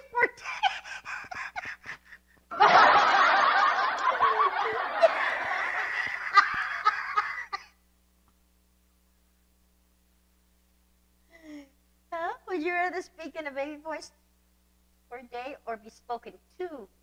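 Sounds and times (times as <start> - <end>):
woman laughing hard: 0.4 - 7.7.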